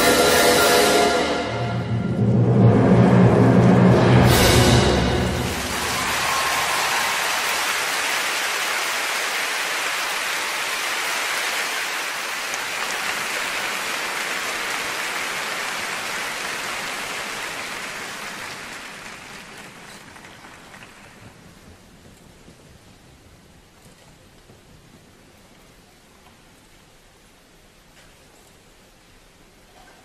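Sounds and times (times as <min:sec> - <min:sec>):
audience applauding: 0:05.3 - 0:21.6.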